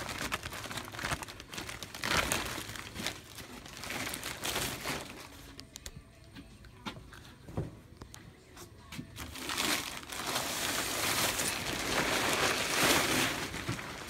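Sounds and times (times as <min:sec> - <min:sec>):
plastic tarp crinkling and rustling: 0:00.0 - 0:05.5, 0:09.2 - 0:14.0.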